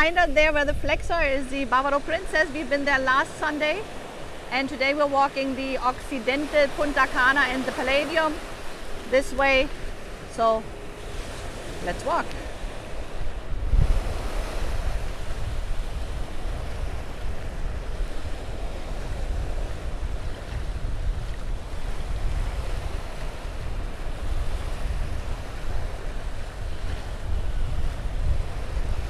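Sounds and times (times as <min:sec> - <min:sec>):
ocean surf on beach: 0:00.0 - 0:29.0
wind buffeting microphone: 0:00.0 - 0:29.0.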